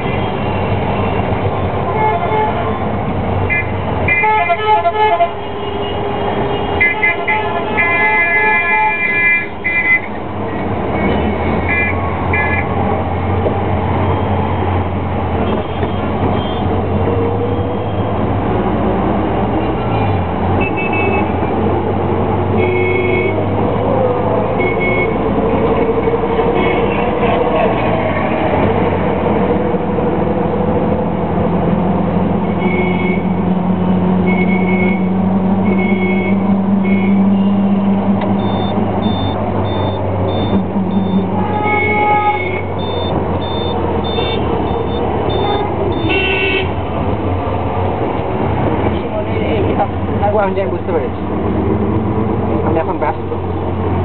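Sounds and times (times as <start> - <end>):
car engine and road noise: 0.0 - 54.0
car horns honking: 1.8 - 2.8, 3.5 - 10.2, 10.9 - 12.8, 15.4 - 16.8, 19.6 - 21.5, 22.5 - 23.6, 24.6 - 25.4, 26.4 - 27.8, 32.4 - 33.4, 34.2 - 46.9.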